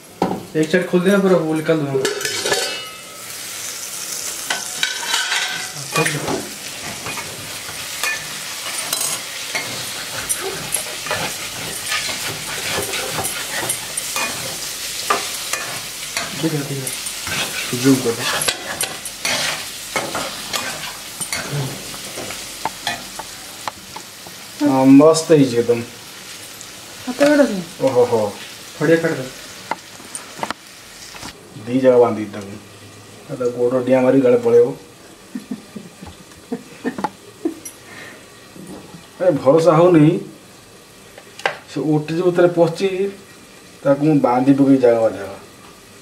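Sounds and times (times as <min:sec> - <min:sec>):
sizzling hiss with crackles: 0:00.0 - 0:46.0.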